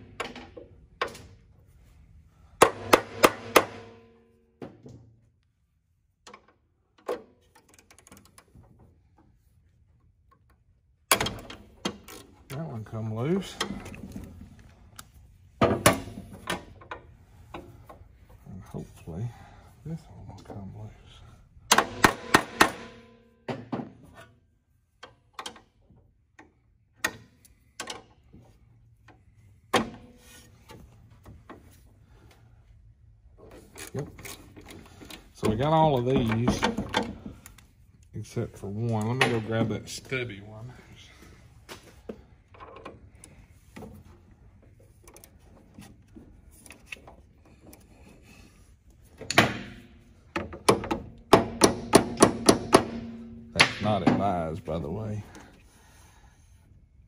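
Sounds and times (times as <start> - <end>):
hammer strike on metal: 2.6 - 4.1
small metallic clicks and rattles: 6.2 - 8.8.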